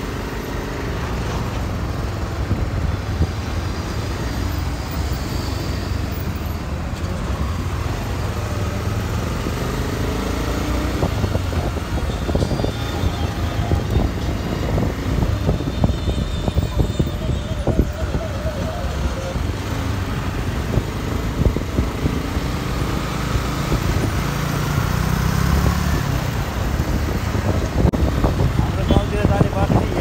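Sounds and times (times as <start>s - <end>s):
passing vehicles: 0.0s - 30.0s
wind rumble on microphone: 10.8s - 30.0s.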